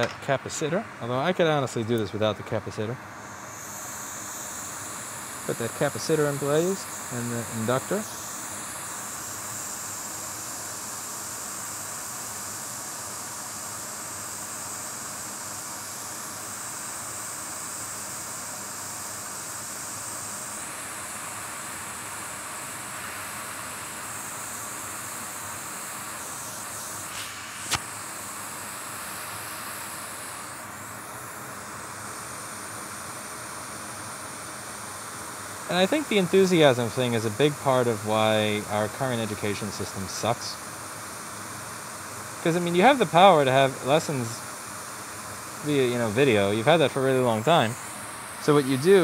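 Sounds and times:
hot air station hissing: 0.0s - 49.0s
sharp click: 27.2s - 27.9s.

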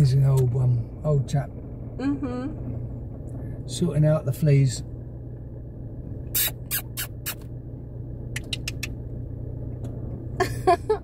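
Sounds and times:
car engine and road hum: 0.0s - 11.0s
sharp clicks: 8.3s - 9.0s.

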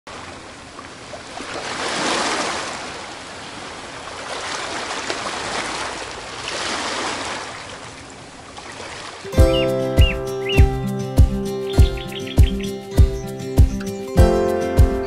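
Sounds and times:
small waves breaking on shore: 0.1s - 9.4s.

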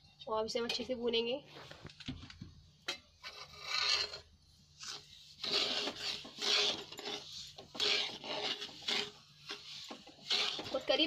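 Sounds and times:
metal spoon scraping a pan: 2.9s - 11.0s.

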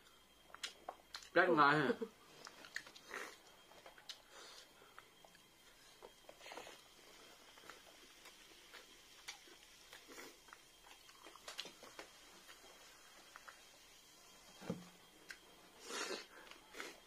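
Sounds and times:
chewing sounds: 2.3s - 13.8s.

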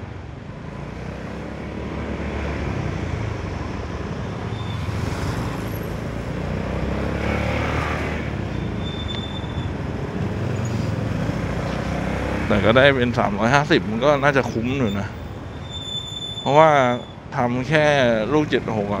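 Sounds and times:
wind and road noise: 0.0s - 19.0s.

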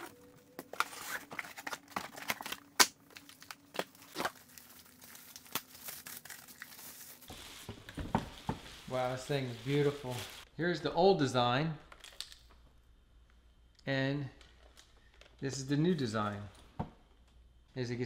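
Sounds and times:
plastic wrapping crinkling: 0.0s - 10.5s
cardboard packaging scraping: 0.7s - 2.7s.

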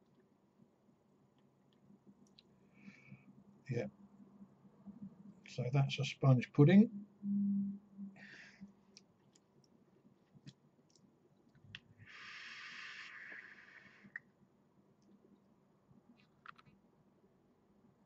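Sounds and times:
faint small clicks: 1.3s - 2.5s, 8.9s - 11.9s, 16.1s - 16.8s
e-cigarette airy hiss: 12.0s - 14.2s.

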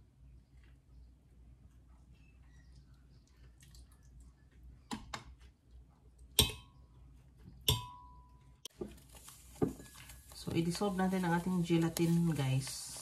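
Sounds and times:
glass ringing: 7.7s - 8.4s.

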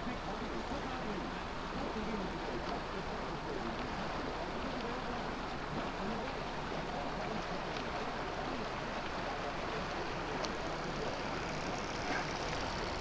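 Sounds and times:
motorboat engine: 0.0s - 13.0s
water washing along hull: 0.0s - 13.0s.

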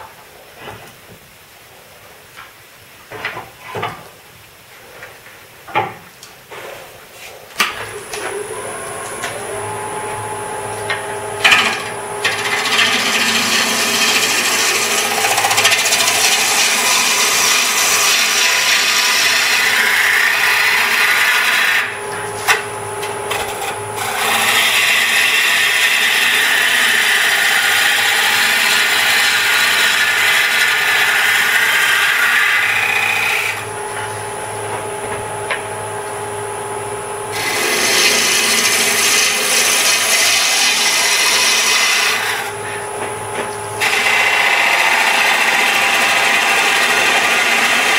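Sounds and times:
turning tool cutting wood: 7.6s - 33.8s, 37.3s - 42.9s, 43.8s - 47.9s
lathe humming: 7.8s - 47.9s.

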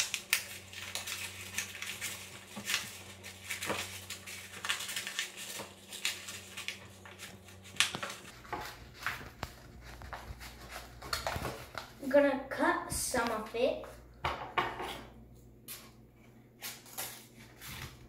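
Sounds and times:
paper rustling: 0.0s - 12.0s.

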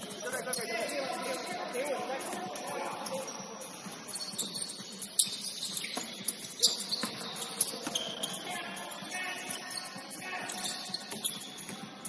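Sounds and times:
sneakers squeaking on gym floor: 0.0s - 12.0s.

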